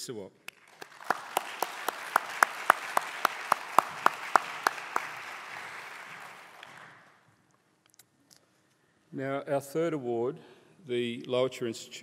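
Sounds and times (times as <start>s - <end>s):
audience applauding: 0.5s - 7.2s
close person clapping: 0.5s - 7.2s.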